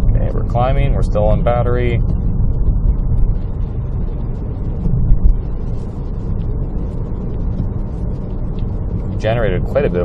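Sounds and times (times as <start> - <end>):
road and tyre noise in car: 0.0 - 10.0
low thump: 4.7 - 5.7.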